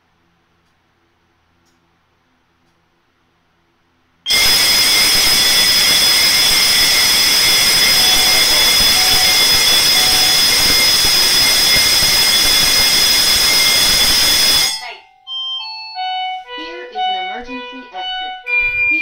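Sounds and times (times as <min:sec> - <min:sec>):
fire alarm bell ringing: 0:04.3 - 0:19.0.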